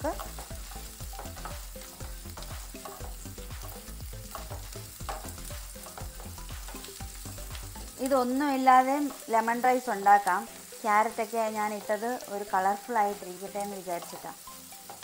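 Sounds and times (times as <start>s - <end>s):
vegetables sizzling in hot oil: 0.0s - 15.0s
wooden spatula scraping frying pan: 0.1s - 7.2s.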